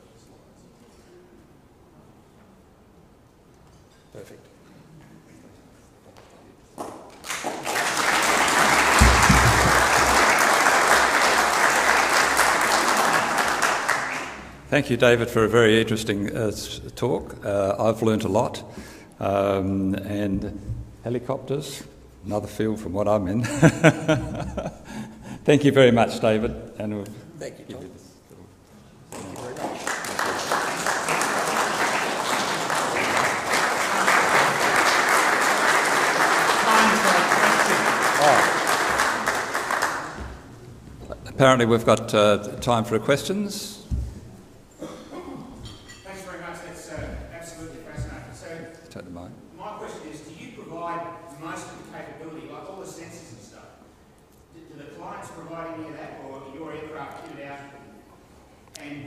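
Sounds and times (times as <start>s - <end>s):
audience applauding: 6.8s - 14.6s, 29.1s - 40.5s
low thump: 9.0s - 9.8s.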